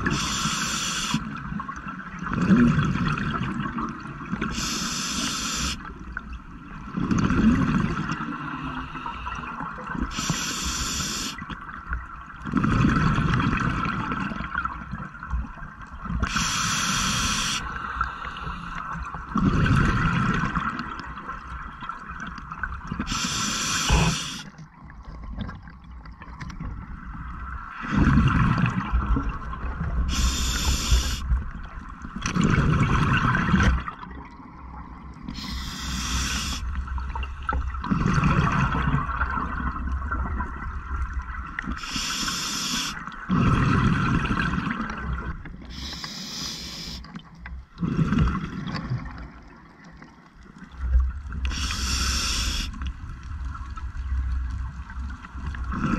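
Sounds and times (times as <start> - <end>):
regulator hissing inhale: 0.0 - 1.3, 4.5 - 5.9, 10.1 - 11.4, 16.3 - 18.8, 23.1 - 24.5, 30.1 - 31.3, 35.4 - 36.8, 41.8 - 43.0, 45.7 - 47.1, 51.4 - 52.9
rush of exhaled bubbles: 19.3 - 21.1, 27.7 - 31.4, 32.2 - 34.2, 35.3 - 42.0, 43.2 - 47.0, 47.7 - 49.5, 55.5 - 55.9.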